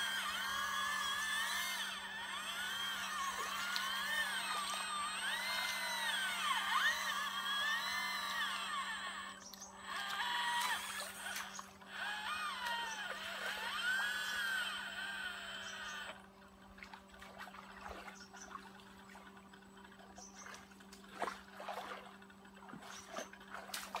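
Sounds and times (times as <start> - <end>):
hydraulic pump whining: 0.0 - 16.6
low steady hum: 0.0 - 24.0
water trickling and splashing: 16.2 - 24.0.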